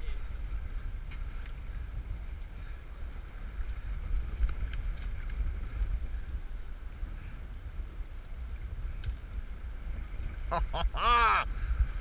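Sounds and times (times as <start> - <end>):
wind buffeting microphone: 0.0 - 12.0
faint ticks: 1.0 - 1.6, 3.6 - 6.8, 8.0 - 9.5.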